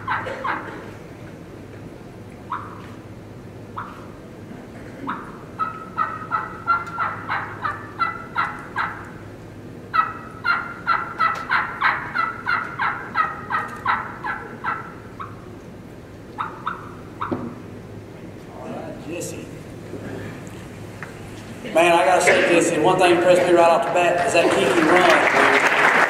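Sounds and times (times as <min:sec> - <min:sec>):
turkey caller yelps: 0:00.0 - 0:00.8, 0:02.5 - 0:02.9, 0:03.8 - 0:04.1, 0:05.1 - 0:09.2, 0:09.9 - 0:15.5, 0:16.4 - 0:17.4.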